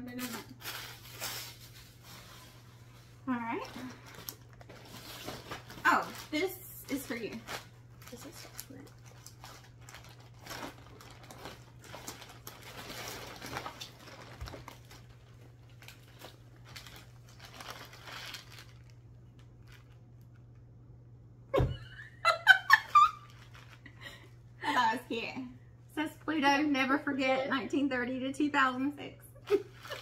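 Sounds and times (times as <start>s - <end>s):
plastic bag crinkling: 0.0s - 20.6s, 22.7s - 24.2s, 29.5s - 30.0s
low steady hum: 0.0s - 30.0s.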